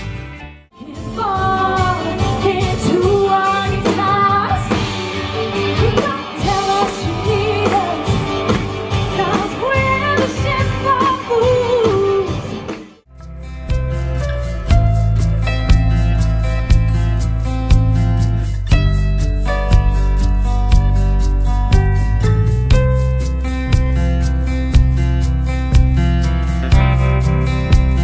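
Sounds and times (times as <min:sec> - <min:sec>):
bass guitar: 0:00.0 - 0:28.0
drums: 0:00.0 - 0:28.0
electric guitar: 0:00.0 - 0:28.0
woman singing: 0:00.8 - 0:04.9, 0:05.6 - 0:12.5.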